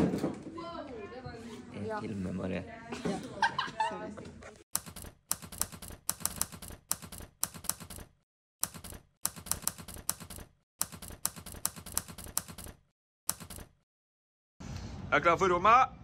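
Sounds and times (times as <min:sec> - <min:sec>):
typewriter keys clacking: 0:04.8 - 0:13.8.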